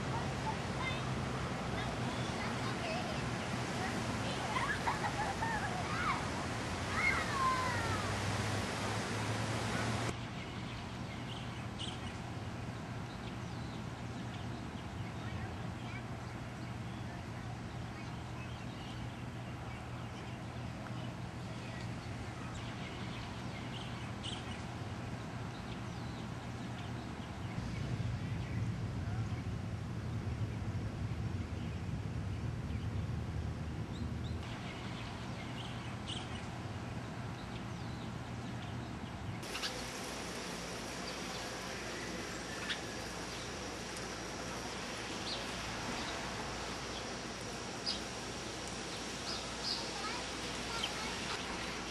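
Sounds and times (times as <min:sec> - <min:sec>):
low rumble: 0:27.6 - 0:34.4
bright hiss: 0:39.4 - 0:51.9
faint bird chirps: 0:39.5 - 0:40.0.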